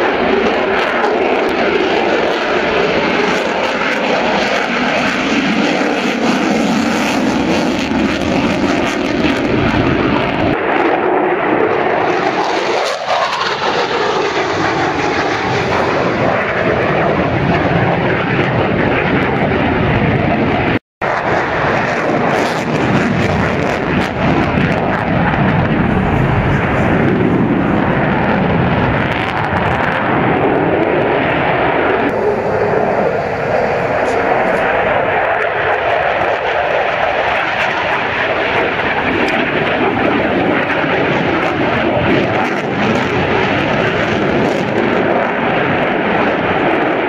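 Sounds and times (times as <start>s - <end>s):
loud jet noise: 0.0s - 47.0s.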